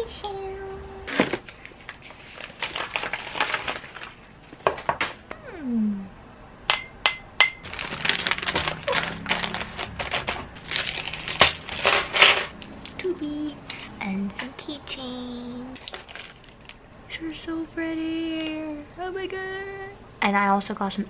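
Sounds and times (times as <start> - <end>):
packaging rustling and crinkling: 1.1 - 5.2, 7.6 - 12.9, 15.8 - 16.8.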